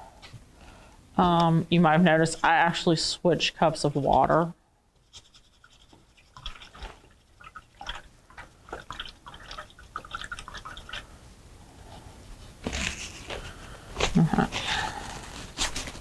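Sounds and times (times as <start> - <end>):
paintbrush rinsing in water: 5.6 - 11.1
paper towel rustling: 12.4 - 16.0.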